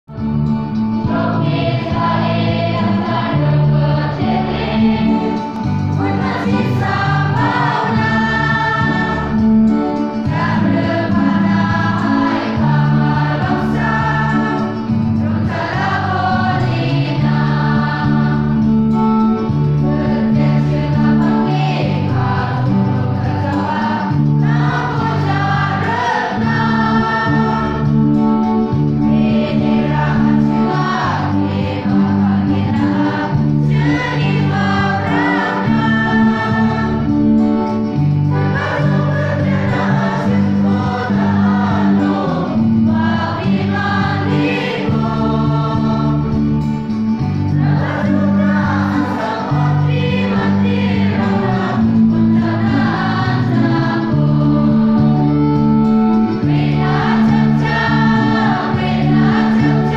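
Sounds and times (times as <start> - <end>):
choir and congregation singing hymn: 0.1 - 59.9
musical accompaniment: 0.1 - 59.9.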